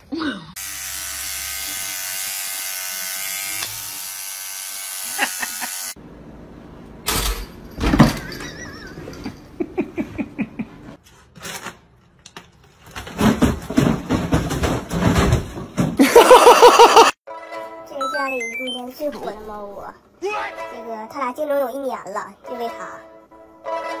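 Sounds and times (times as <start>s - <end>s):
electric toothbrush buzzing: 0.6s - 6.0s.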